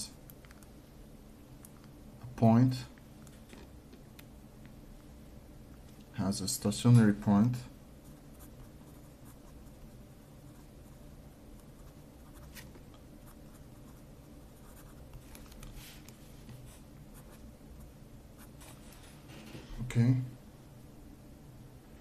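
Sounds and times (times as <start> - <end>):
low steady hum: 0.0 - 22.0
pen scratching on paper: 13.3 - 15.0.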